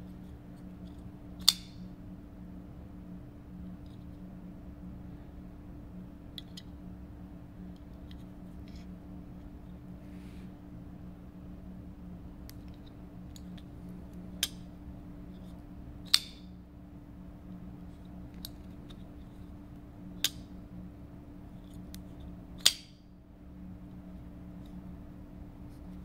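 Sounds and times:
steady low hum: 0.0s - 26.0s
folding knife clicking open and shut: 22.6s - 22.9s.

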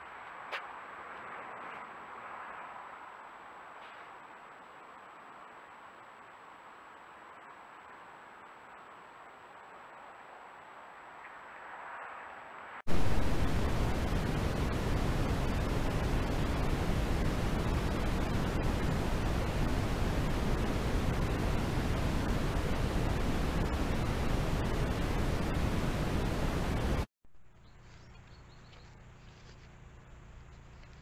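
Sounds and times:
steady hiss: 12.9s - 27.1s.

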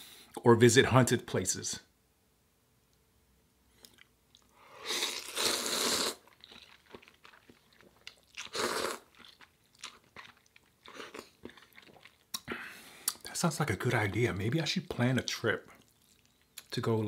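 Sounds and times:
wet chewing: 3.8s - 13.3s, 15.7s - 16.8s
person slurping noodles: 4.6s - 6.4s, 8.4s - 9.4s.

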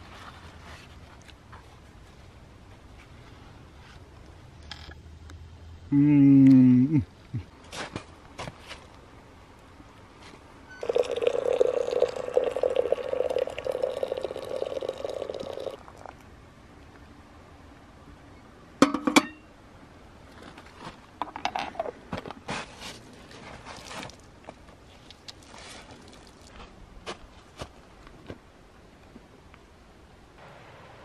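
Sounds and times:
rustling: 0.0s - 4.3s, 20.3s - 28.4s
teapot clinking down: 10.7s - 15.8s
water pouring into teapot: 10.8s - 16.1s.

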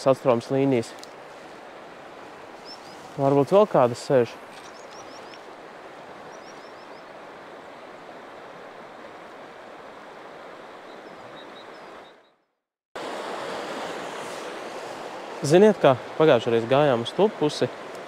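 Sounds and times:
river current rushing: 0.0s - 12.2s, 13.0s - 18.0s
high bird chirps: 4.6s - 5.4s.

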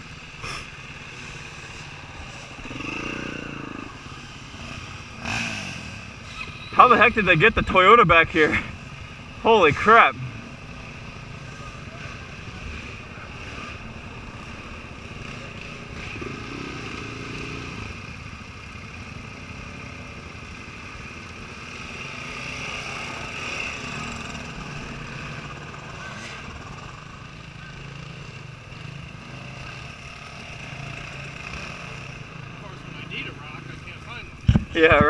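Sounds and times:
dirt bike engines running: 0.0s - 35.0s.

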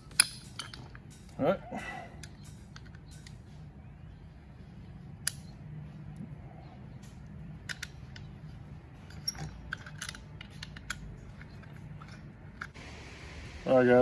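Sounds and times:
small metal clicks of screws: 0.0s - 1.4s, 2.2s - 3.5s, 5.2s - 5.5s, 7.0s - 8.4s, 9.0s - 12.8s
low steady hum: 0.0s - 14.0s.

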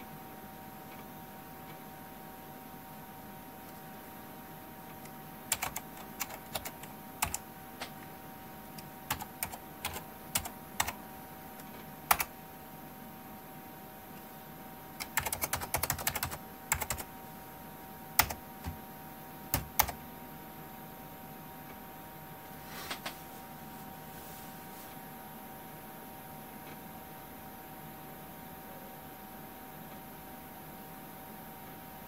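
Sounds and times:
keyboard typing: 4.9s - 8.0s, 8.7s - 11.0s, 11.6s - 12.3s, 15.0s - 17.1s, 18.2s - 18.8s, 19.5s - 20.0s.

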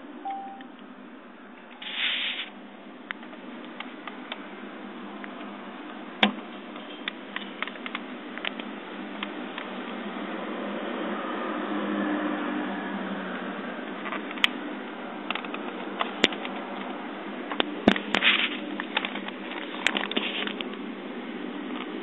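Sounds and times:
background noise: 0.0s - 22.0s
button and casing clicks: 0.2s - 0.7s
camcorder beep: 0.2s - 0.7s
brief hiss: 1.8s - 2.5s.

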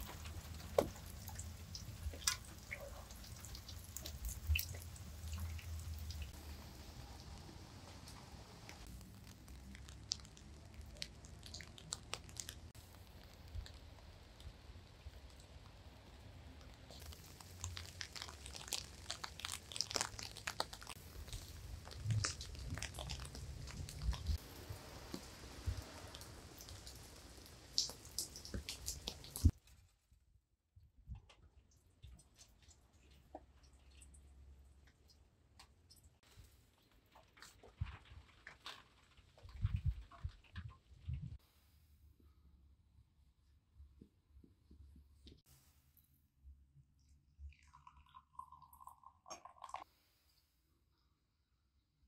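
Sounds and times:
water drips and taps: 0.0s - 15.8s, 16.6s - 29.5s, 47.4s - 49.8s
crunching and chewing: 8.1s - 14.6s, 16.6s - 24.5s.

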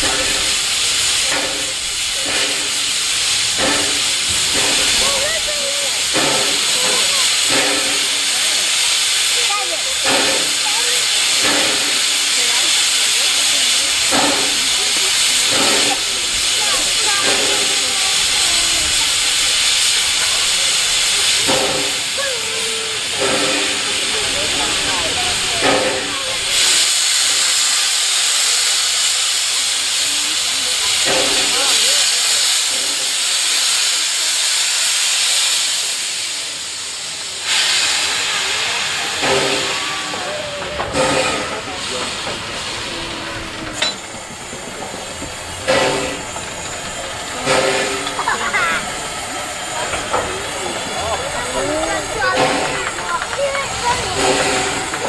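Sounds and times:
steam venting hiss: 0.0s - 55.0s.

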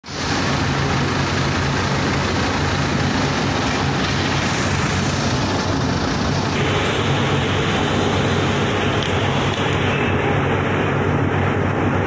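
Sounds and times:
loud mechanical din: 0.0s - 12.0s
low machine hum: 0.1s - 12.0s.

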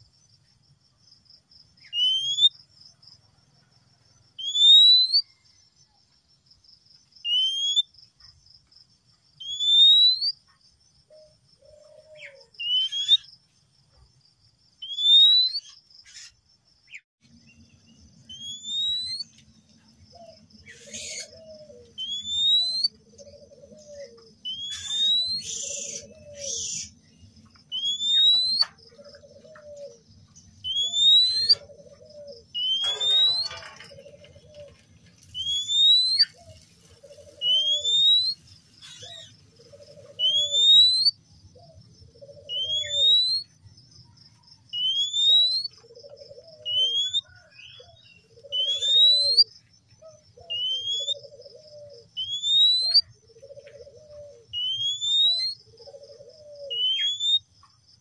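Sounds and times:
bird whistling song: 1.8s - 2.6s, 4.4s - 5.5s, 7.2s - 7.9s, 9.4s - 10.4s, 11.7s - 13.3s, 14.8s - 16.3s, 18.2s - 19.4s, 20.2s - 43.6s, 44.7s - 49.5s, 50.1s - 57.5s.

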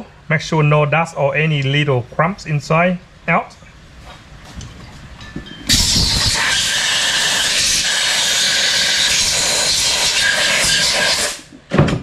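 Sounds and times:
compressed air hissing: 5.7s - 11.5s.

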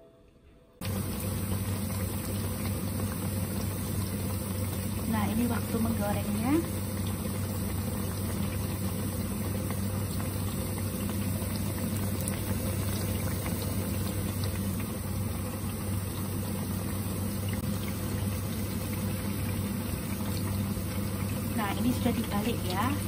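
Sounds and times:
food sizzling in hot oil: 0.8s - 23.0s.

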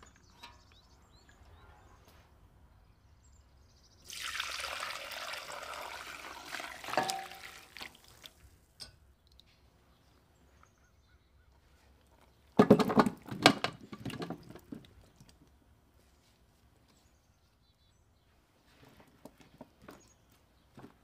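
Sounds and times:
vegetables tumbling into metal pan: 7.0s - 7.4s.

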